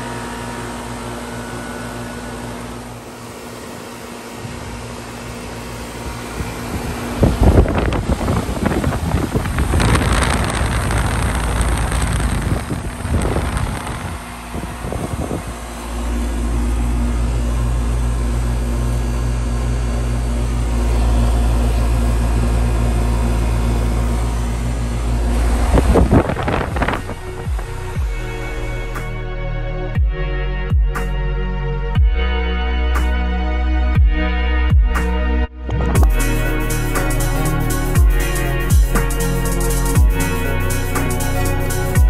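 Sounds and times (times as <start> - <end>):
heat pump humming: 0.0 - 31.1, 35.6 - 42.0
low rumble: 6.1 - 42.0.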